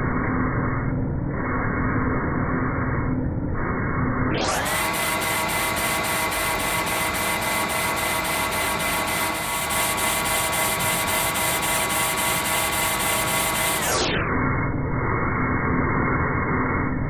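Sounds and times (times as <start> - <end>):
metal lathe humming: 4.5 - 13.9.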